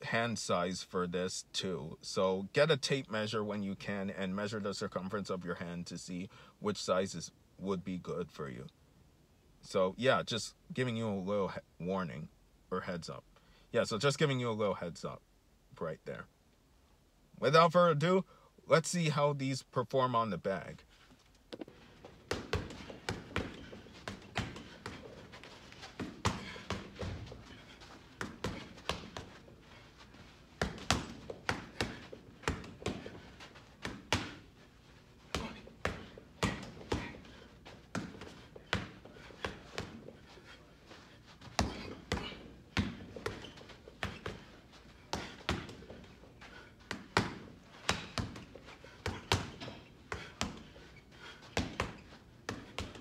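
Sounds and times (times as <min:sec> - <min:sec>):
punches thudding on heavy bag: 0:22.1 - 0:25.3, 0:25.9 - 0:29.4, 0:30.6 - 0:34.5, 0:35.3 - 0:40.1, 0:41.5 - 0:46.1, 0:46.9 - 0:50.7.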